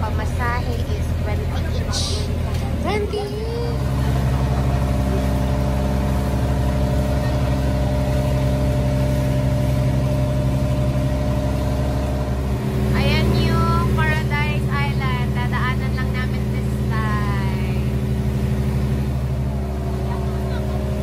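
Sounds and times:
people's voices: 0:00.0 - 0:08.6, 0:12.9 - 0:18.0, 0:19.8 - 0:21.0
boat engine running: 0:00.0 - 0:21.0.

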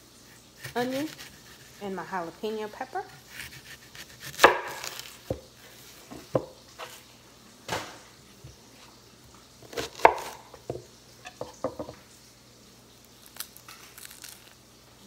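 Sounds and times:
knife knocking on cutting board: 0:06.2 - 0:06.5, 0:10.6 - 0:12.0.

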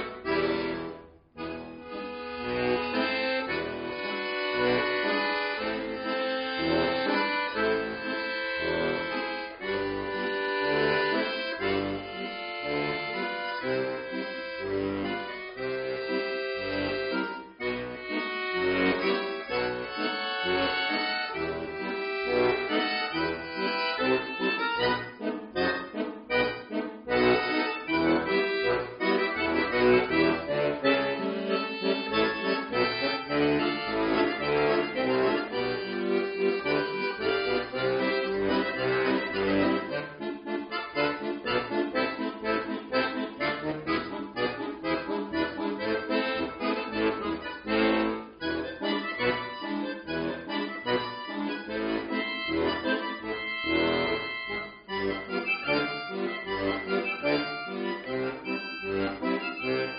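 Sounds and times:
button accordion playing: 0:00.0 - 0:59.9.

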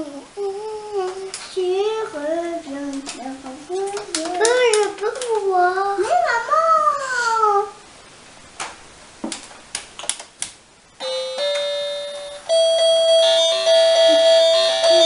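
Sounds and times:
toy keyboard notes: 0:11.0 - 0:15.0.

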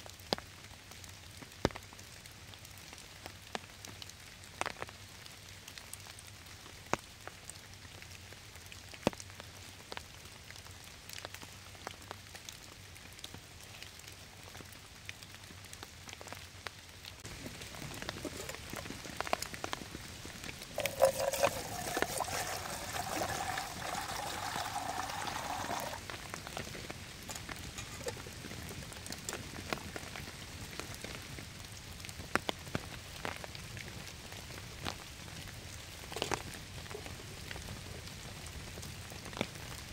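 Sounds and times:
steady rain: 0:00.0 - 0:39.9
fire crackle: 0:10.2 - 0:39.9.

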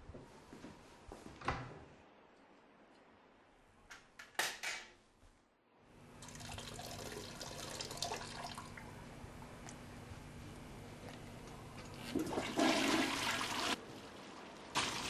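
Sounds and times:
running water: 0:11.7 - 0:15.0.

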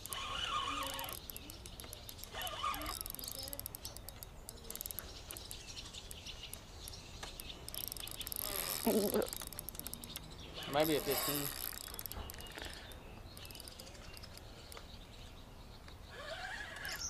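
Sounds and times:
fishing reel ticking: 0:00.0 - 0:14.8.

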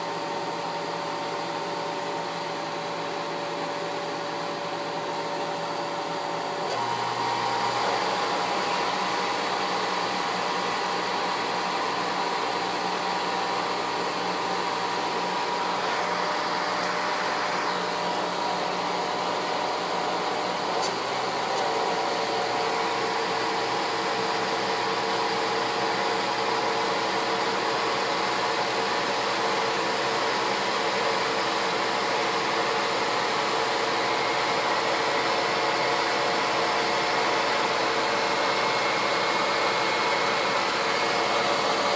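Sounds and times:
electric motor whirring and whining: 0:05.0 - 0:25.1.

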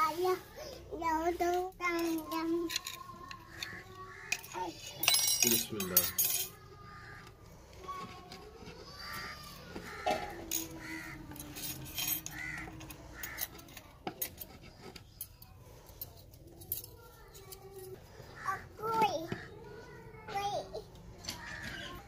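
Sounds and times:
crow cawing: 0:03.5 - 0:04.8, 0:06.8 - 0:07.5, 0:08.8 - 0:11.4, 0:12.2 - 0:13.7, 0:18.2 - 0:19.6, 0:21.4 - 0:22.0.

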